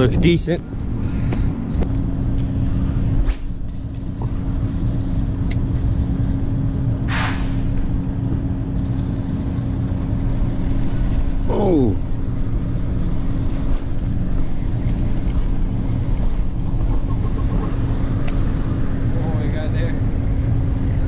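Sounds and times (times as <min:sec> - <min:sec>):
constant hum: 0:00.0 - 0:21.0
road traffic rumble: 0:00.0 - 0:21.0
short whoosh: 0:07.0 - 0:07.8.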